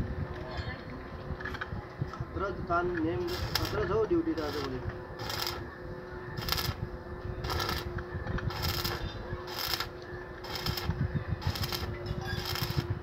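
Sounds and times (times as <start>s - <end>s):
steady hum: 0.0s - 13.0s
arc welding crackle: 3.2s - 5.7s, 6.4s - 6.8s, 7.4s - 13.0s.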